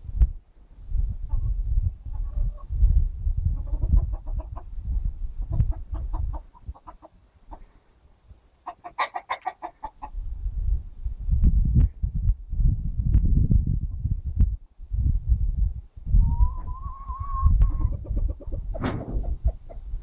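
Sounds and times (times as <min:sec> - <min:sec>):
chickens clucking: 0:01.2 - 0:02.8, 0:03.4 - 0:07.8, 0:08.6 - 0:10.2, 0:16.2 - 0:20.0.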